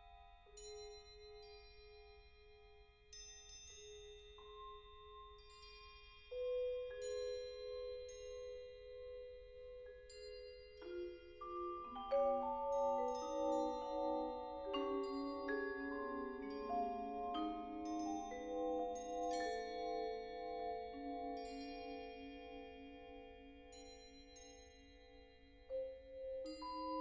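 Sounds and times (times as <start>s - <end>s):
vibraphone and marimba notes: 10.9s - 22.8s.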